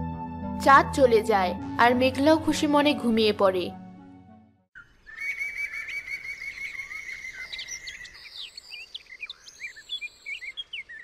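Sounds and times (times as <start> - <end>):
fast bird trill: 4.8 - 11.0
songbirds chirping: 4.8 - 11.0.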